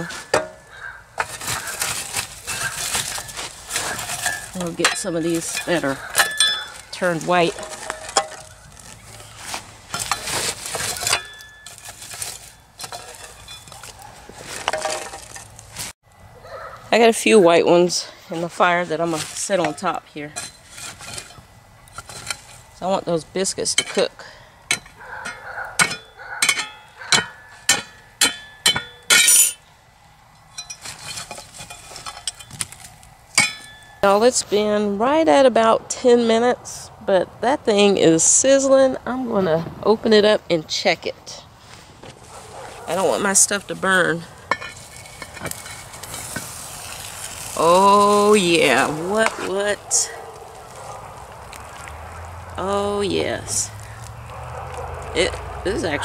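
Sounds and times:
metal shovel scraping charcoal: 0:00.0 - 0:16.0, 0:17.7 - 0:29.7, 0:30.4 - 0:34.8, 0:41.6 - 0:51.9
metal shovel clinking on iron lid: 0:01.2 - 0:08.6, 0:09.9 - 0:14.0, 0:24.7 - 0:29.6, 0:33.4 - 0:34.0, 0:44.4 - 0:46.5.

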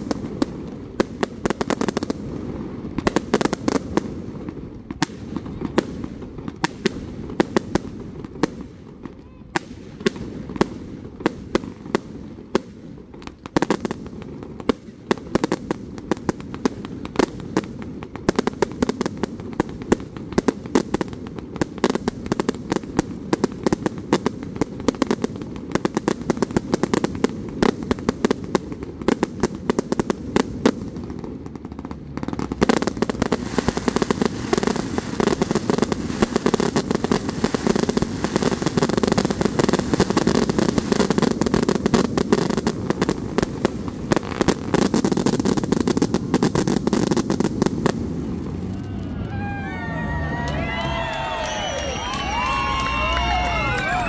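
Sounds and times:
fireworks bangs and pops: 0:00.0 - 0:48.9.

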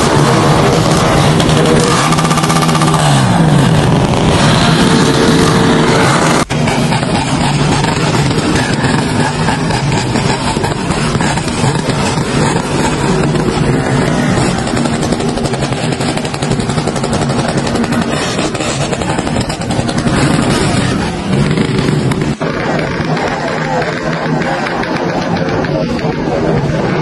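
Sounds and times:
motorcycle engines running: 0:00.0 - 0:27.0.

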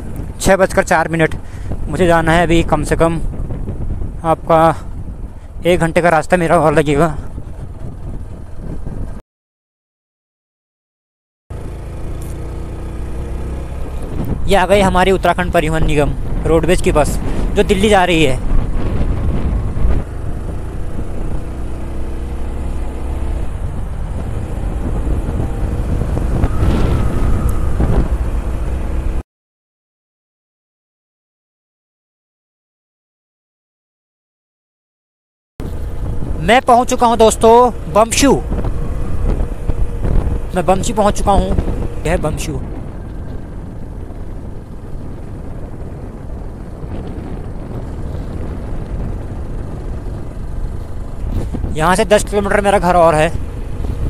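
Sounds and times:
motorcycle engine rumble: 0:00.0 - 0:09.2, 0:11.5 - 0:29.2, 0:35.6 - 0:54.0
steady higher tone: 0:25.4 - 0:29.1.

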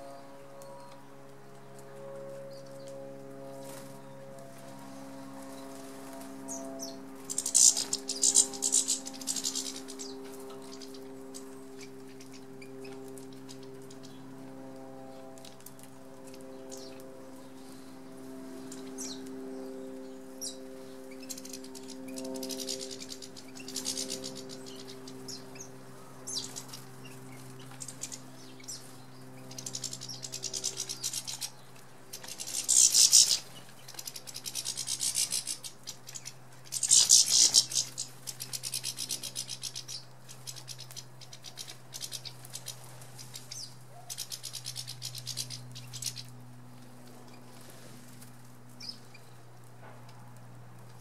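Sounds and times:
low steady hum: 0:00.0 - 0:51.0
high twittering bird calls: 0:06.4 - 0:14.3, 0:16.4 - 0:17.9, 0:18.6 - 0:46.4, 0:48.8 - 0:49.4.

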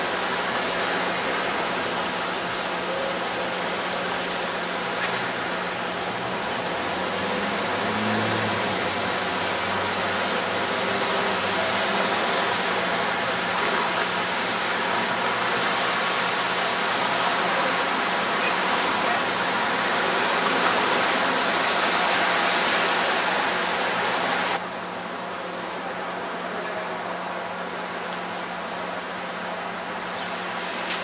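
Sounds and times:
traffic driving past: 0:00.0 - 0:24.7
brief high squeal: 0:16.9 - 0:18.1.

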